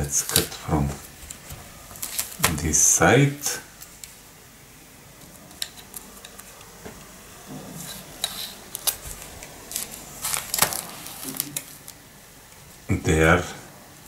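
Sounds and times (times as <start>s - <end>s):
plastic wrapper crinkling: 0.0s - 2.8s, 7.7s - 12.1s
scissors snipping plastic wrapper: 0.2s - 0.6s, 8.2s - 12.0s.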